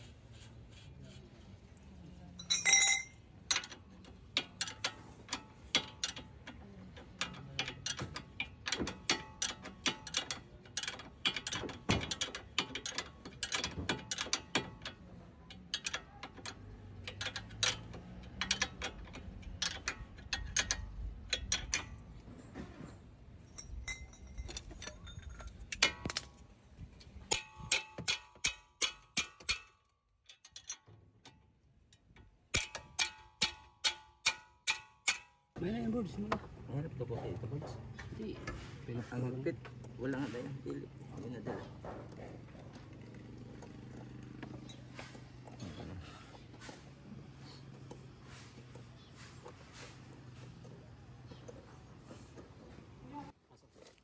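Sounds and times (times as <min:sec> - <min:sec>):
metallic clinks of steel: 0:02.4 - 0:03.8, 0:23.4 - 0:26.5
ratchet wrench clicking: 0:02.5 - 0:22.1, 0:27.3 - 0:35.4.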